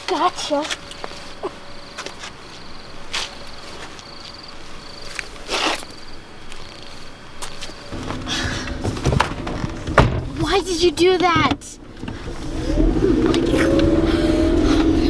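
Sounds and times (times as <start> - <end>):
cricket chirping: 0.1 - 10.3
rustling and scuffing: 0.4 - 10.0.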